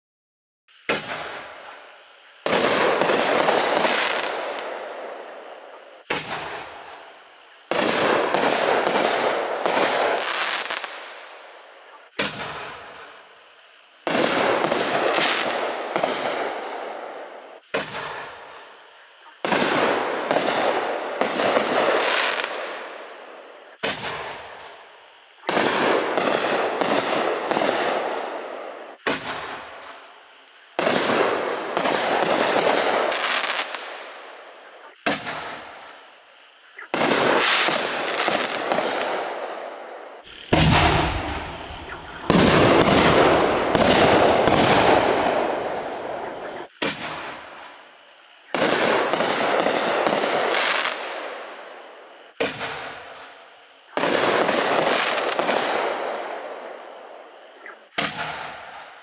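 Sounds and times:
firework crackling and hissing: 0.7s - 59.0s
firework bangs: 2.4s - 5.2s, 6.0s - 6.9s, 7.7s - 11.2s, 12.1s - 13.0s, 14.1s - 18.4s, 19.4s - 22.9s, 23.8s - 24.6s, 25.5s - 29.8s, 30.8s - 34.1s, 35.0s - 35.7s, 36.9s - 47.4s, 48.5s - 51.4s, 54.0s - 56.6s, 57.9s - 58.8s.

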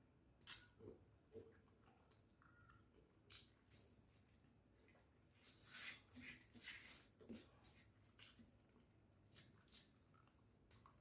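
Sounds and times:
chewing and lip smacks: 9.3s - 11.0s.

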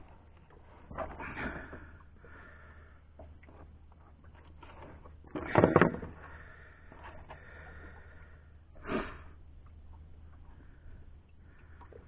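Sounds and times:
clatter of knocks: 5.4s - 6.1s.

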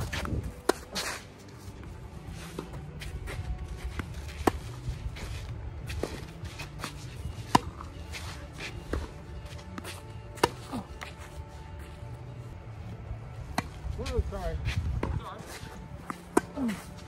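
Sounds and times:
shuffling footsteps on court: 0.0s - 17.0s
racket hitting ball: 6.8s - 7.9s, 9.8s - 10.7s.

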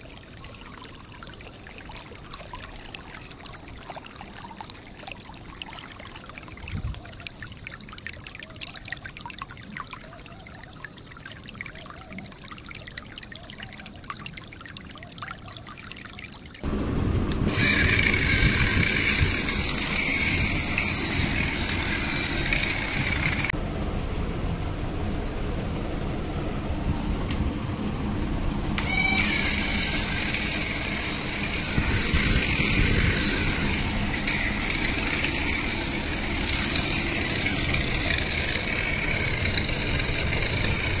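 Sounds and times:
small electric motor whining: 17.4s - 23.5s, 28.8s - 41.0s.

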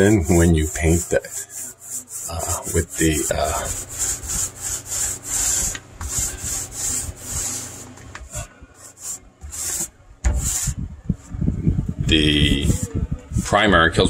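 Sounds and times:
foam roller swishing: 0.0s - 8.0s, 8.8s - 10.8s.

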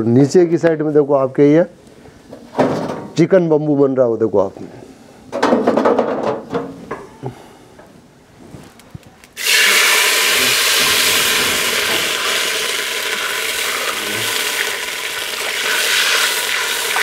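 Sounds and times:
water sizzling in hot oil: 9.4s - 17.0s.

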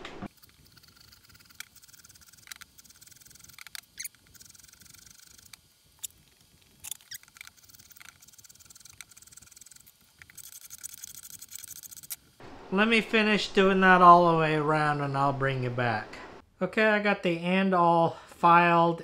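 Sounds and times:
small clicks and ticks: 0.3s - 12.3s.

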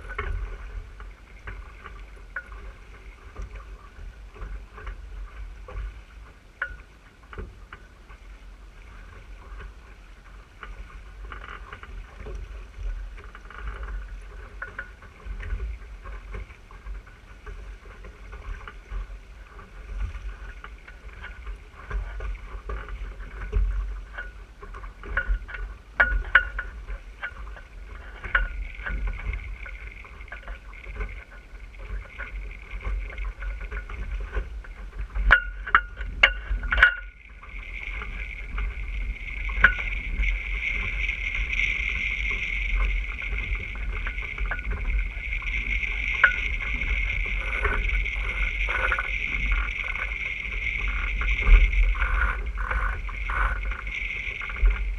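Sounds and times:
water slapping hull: 0.0s - 54.9s
wind on microphone: 11.9s - 54.9s.

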